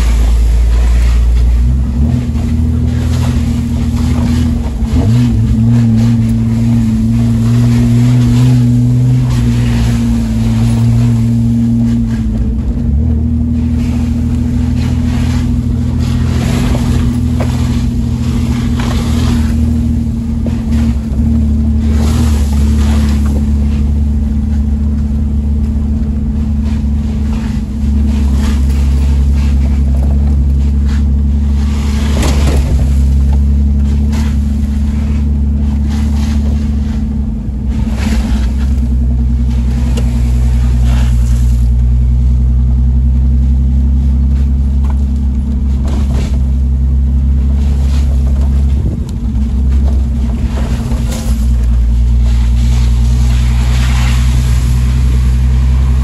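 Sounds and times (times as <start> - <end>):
tyres swishing through puddles: 0.0 - 56.0
vehicle engine droning: 0.0 - 56.0.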